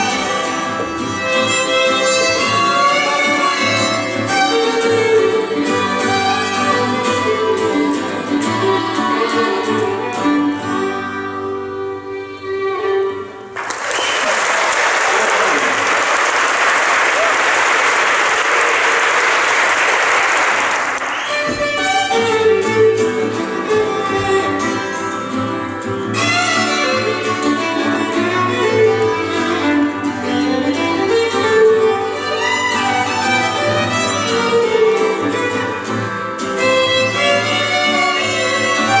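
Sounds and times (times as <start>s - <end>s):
violin melody: 0.0s - 13.6s, 21.1s - 39.0s
audience applause: 13.6s - 21.7s.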